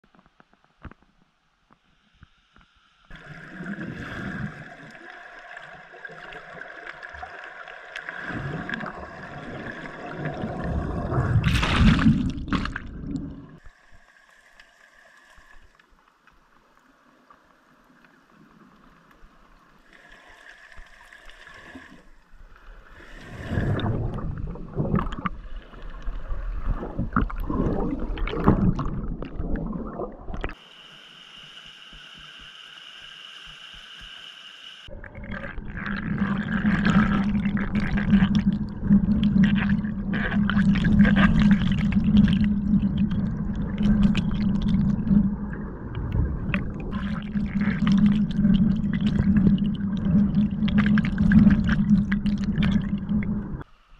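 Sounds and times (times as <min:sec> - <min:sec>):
underwater churning whitewater: 0:03.1 - 0:13.7, 0:23.0 - 0:30.8, 0:34.8 - 0:53.7.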